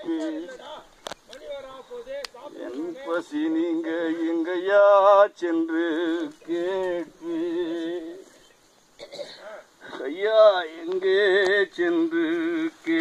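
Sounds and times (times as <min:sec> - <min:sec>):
man singing long notes: 0:00.0 - 0:00.8, 0:02.5 - 0:08.4, 0:09.8 - 0:13.0.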